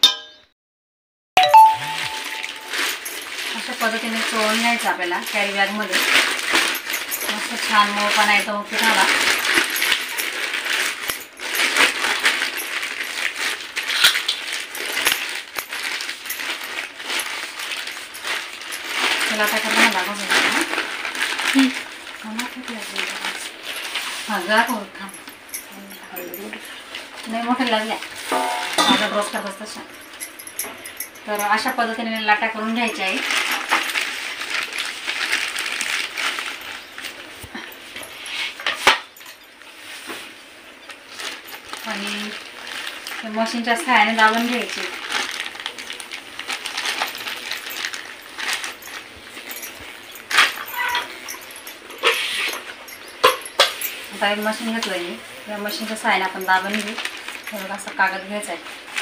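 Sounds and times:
plastic bag crinkling: 0:01.4 - 0:59.0.

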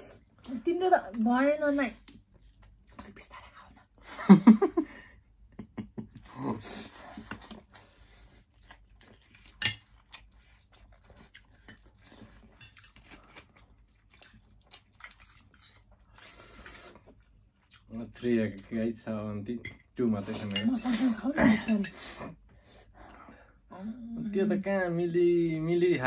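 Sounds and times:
chewing: 0:01.8 - 0:04.0, 0:05.3 - 0:18.9.

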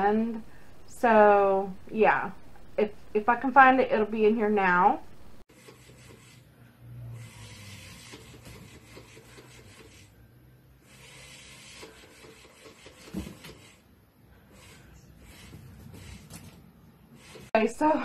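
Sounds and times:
toy motor humming: 0:07.1 - 0:10.1, 0:10.8 - 0:13.8, 0:14.5 - 0:16.4, 0:17.2 - 0:17.5
toy scraping over wooden floor: 0:07.1 - 0:10.1, 0:10.8 - 0:13.8, 0:14.5 - 0:17.6.

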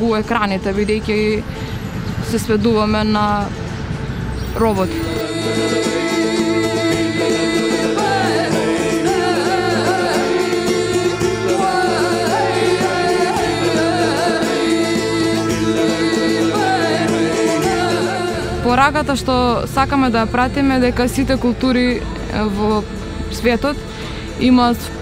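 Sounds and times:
steady held drone tones: 0:04.7 - 0:25.0
person singing: 0:04.8 - 0:19.0.

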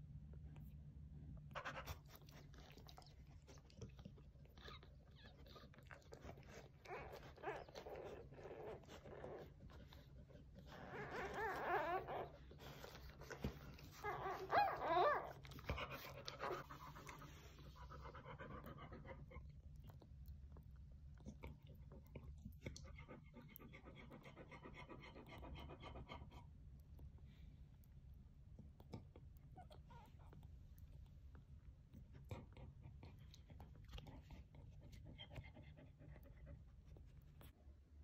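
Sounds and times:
puppies squealing: 0:10.8 - 0:12.4, 0:14.0 - 0:15.3.

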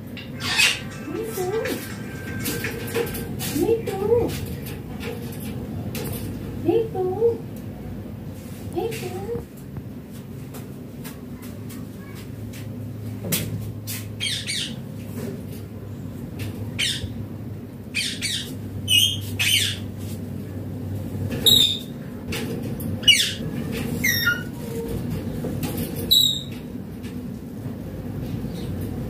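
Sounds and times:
parakeet squawking: 0:00.4 - 0:01.5, 0:14.2 - 0:14.8, 0:16.8 - 0:17.2, 0:17.9 - 0:19.9, 0:21.4 - 0:21.9, 0:23.0 - 0:23.4, 0:24.0 - 0:24.6.

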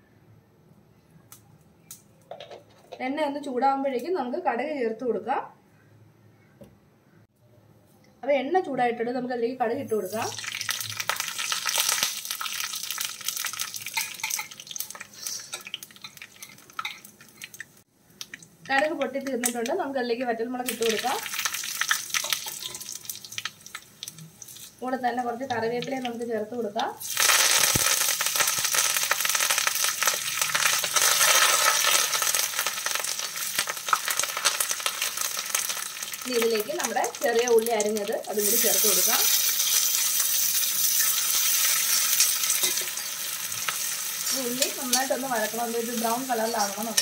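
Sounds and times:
seeds sizzling and popping in oil: 0:10.0 - 0:47.0.

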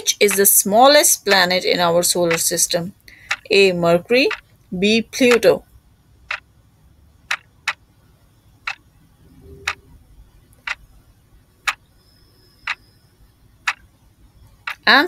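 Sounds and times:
clock ticking: 0:02.3 - 0:03.5, 0:04.2 - 0:04.4, 0:07.3 - 0:07.8, 0:09.6 - 0:09.9, 0:10.5 - 0:10.9, 0:11.6 - 0:11.8, 0:13.6 - 0:13.9, 0:14.6 - 0:15.0.

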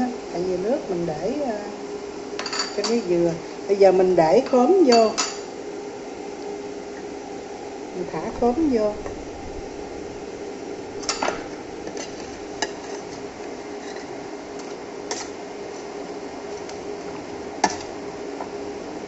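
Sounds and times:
low hum: 0:07.9 - 0:13.5.

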